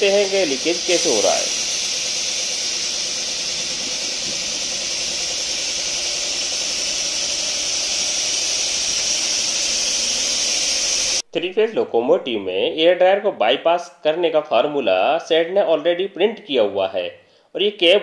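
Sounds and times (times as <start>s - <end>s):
compressed air hissing: 0.0s - 11.2s.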